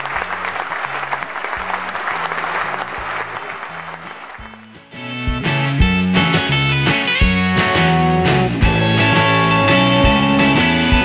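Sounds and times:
applause: 0.0 - 4.9
background music with stepping bass: 4.4 - 11.0.

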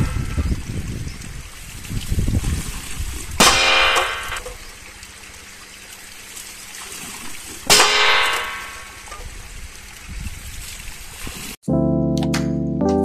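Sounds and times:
water trickling: 0.0 - 11.6
noisemaker striking metal: 3.4 - 4.5, 7.7 - 9.1.

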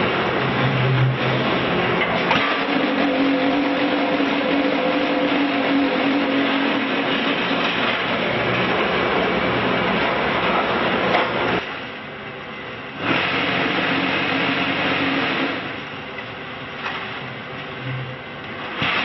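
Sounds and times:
block machine mechanical din: 0.3 - 11.5, 18.7 - 19.0.

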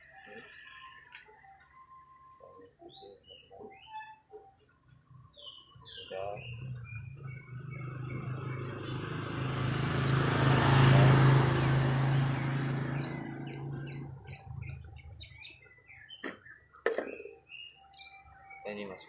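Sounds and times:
small birds chirping: 0.0 - 19.0
vehicle engine passing by: 6.2 - 15.6.

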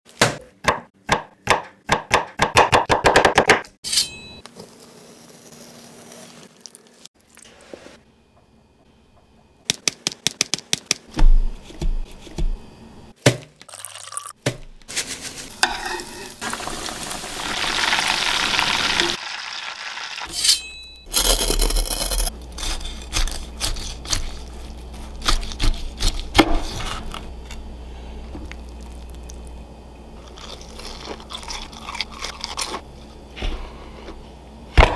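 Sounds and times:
hot oil sizzling: 15.4 - 20.3.

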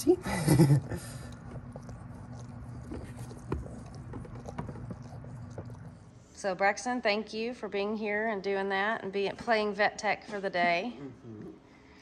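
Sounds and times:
steady low hum: 0.0 - 12.0
puppy suckling clicks and smacks: 1.3 - 6.0.

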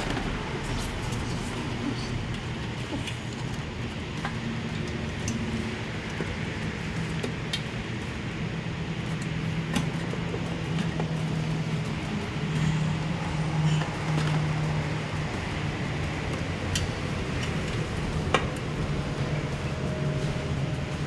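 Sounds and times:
scooter engine idling: 0.0 - 21.0.

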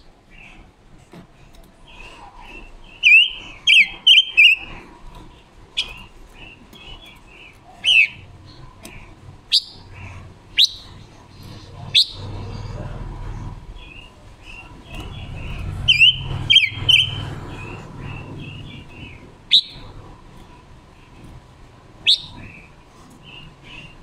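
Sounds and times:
bird chirping sharply: 2.9 - 4.7, 7.8 - 8.3, 13.9 - 19.9.

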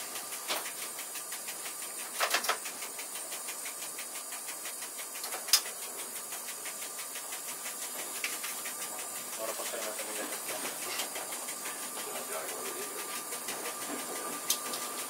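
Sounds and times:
faint regular ticking: 0.0 - 15.0
train cab running hiss: 0.0 - 15.0
sharp clicks: 5.2 - 14.9.

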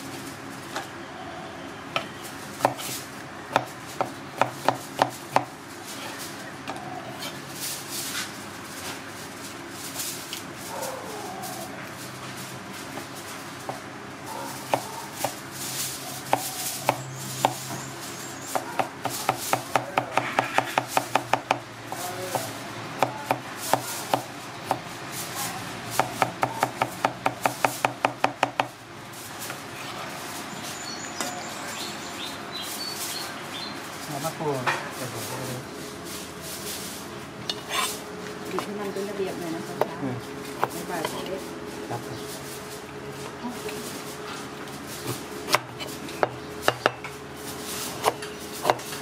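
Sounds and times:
cleaver chopping on cutting board: 3.5 - 5.5, 18.6 - 21.6, 22.3 - 24.8, 48.0 - 48.9.

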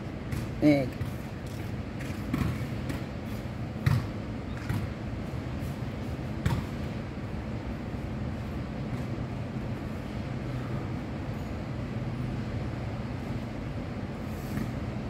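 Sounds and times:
low outdoor background rumble: 0.0 - 15.0.

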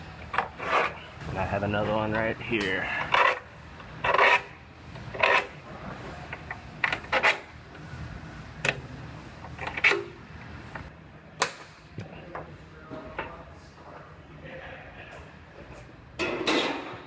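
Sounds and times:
steel scribe scratching sheet metal: 3.0 - 5.6.

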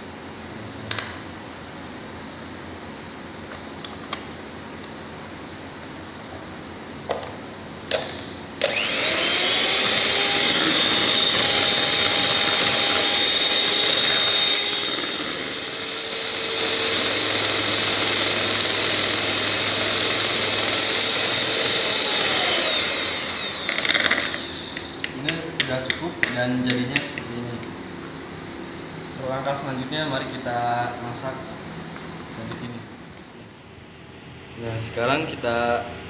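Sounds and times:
electric mixer whine: 7.9 - 27.2.

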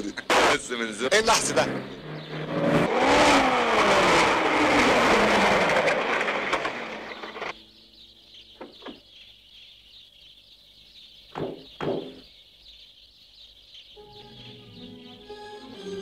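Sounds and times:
car engine: 0.0 - 8.5
road noise: 0.0 - 9.6.

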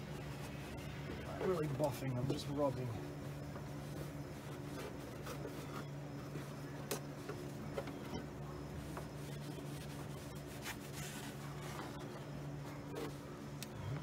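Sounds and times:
pad scrubbing a car surface: 0.0 - 6.6, 8.7 - 11.9.

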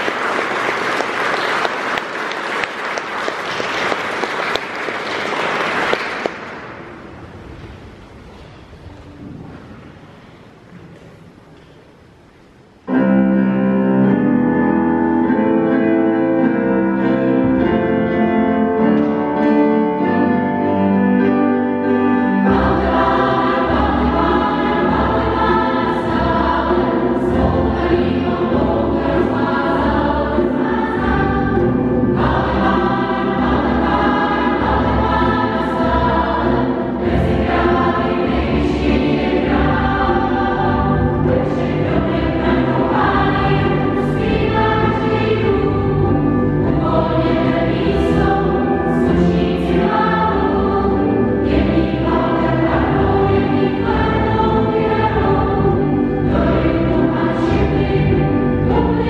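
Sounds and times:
string and keyboard ensemble: 0.0 - 10.5, 12.6 - 59.0
choir singing: 14.0 - 59.0.

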